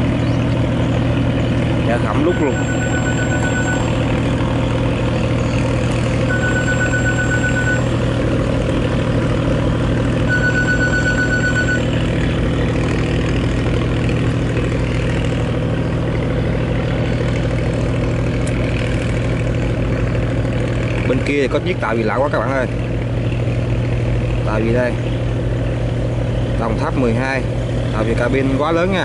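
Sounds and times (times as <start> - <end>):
boat engine drone: 0.0 - 29.0
rapid high electronic beeping: 2.2 - 4.0, 6.3 - 7.9, 10.3 - 11.9.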